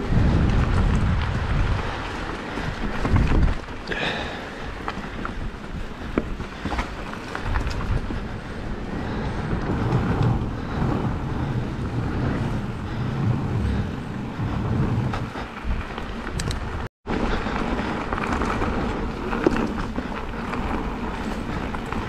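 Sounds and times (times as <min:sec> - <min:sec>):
tyre rumble and rattle: 0:00.0 - 0:22.0
wind buffeting microphone: 0:00.0 - 0:22.0.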